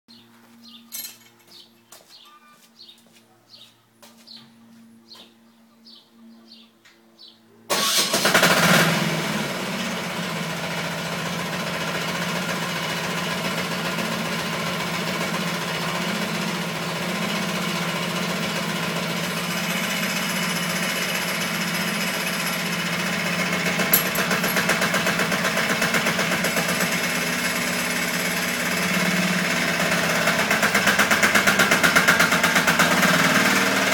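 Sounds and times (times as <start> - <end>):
short high chirps: 2.2 - 2.6
diesel engine starting and running: 7.7 - 33.9.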